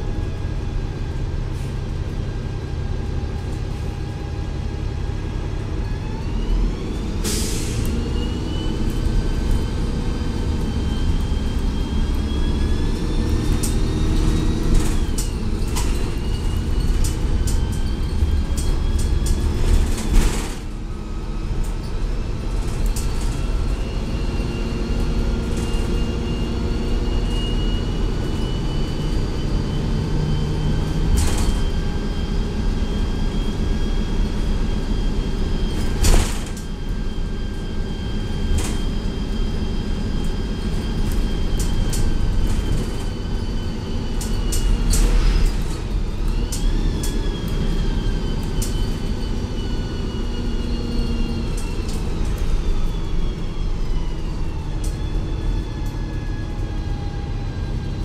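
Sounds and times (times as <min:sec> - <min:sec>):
bus engine whine: 0:00.0 - 0:58.0.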